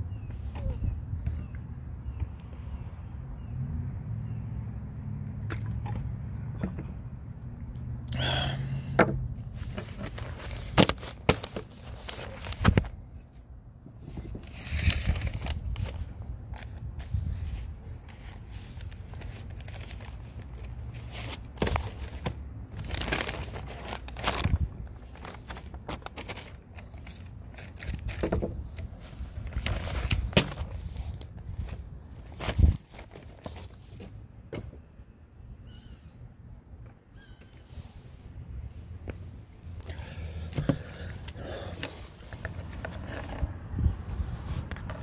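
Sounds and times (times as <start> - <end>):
paper rustling: 9.5 - 12.9, 14.2 - 17.2, 17.9 - 34.2.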